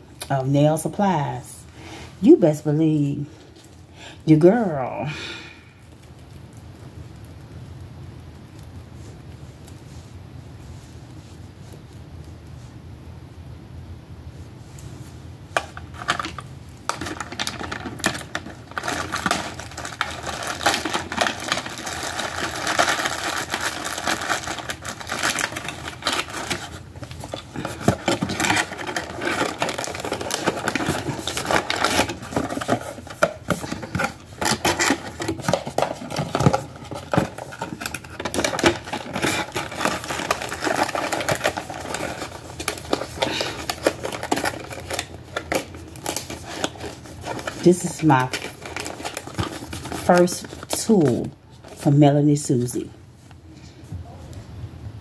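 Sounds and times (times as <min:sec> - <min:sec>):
plastic packaging crinkling: 0:15.5 - 0:52.0.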